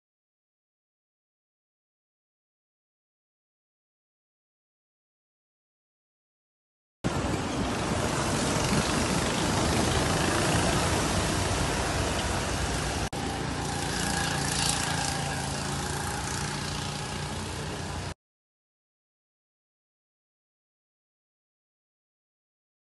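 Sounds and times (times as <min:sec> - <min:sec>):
go-kart engines droning: 0:07.1 - 0:18.2.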